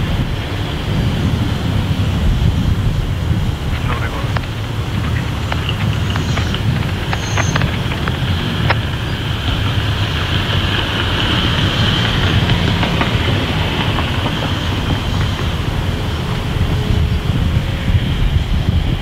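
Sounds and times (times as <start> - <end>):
train rolling past rumble: 0.0 - 19.0
wheel clicks over rail joints: 3.9 - 16.8.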